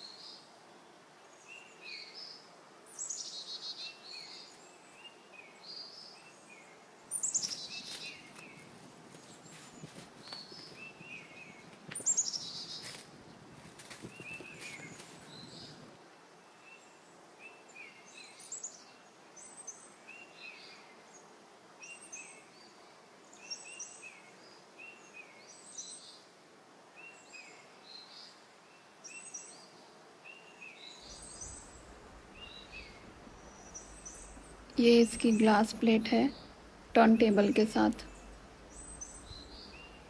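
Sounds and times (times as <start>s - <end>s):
small bird chirping: 7.1s - 13.2s, 13.8s - 15.8s, 30.3s - 40.0s.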